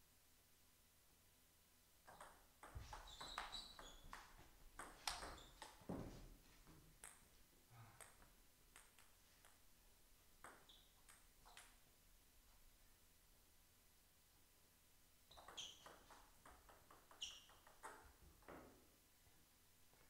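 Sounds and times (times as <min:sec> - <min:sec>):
table tennis ball clicks: 0:02.1 - 0:05.8.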